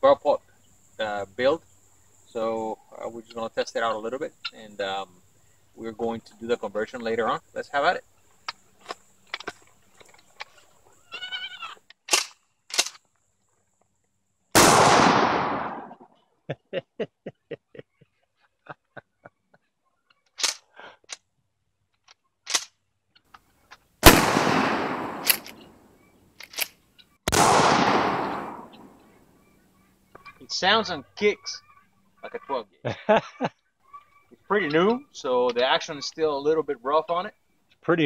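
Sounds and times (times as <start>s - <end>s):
shotgun blasts: 14.6s - 16.0s, 24.0s - 25.8s, 27.3s - 29.0s.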